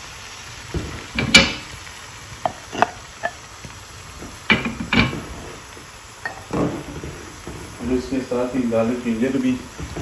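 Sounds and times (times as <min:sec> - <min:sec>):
tomatoes sizzling in oil: 0:00.0 - 0:10.0
knocks and clinks on pan: 0:00.8 - 0:01.7.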